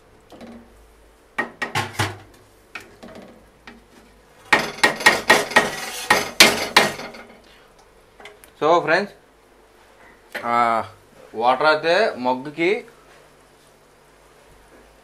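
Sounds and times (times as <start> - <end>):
metal spoon scraping steel pot: 5.4 - 6.3.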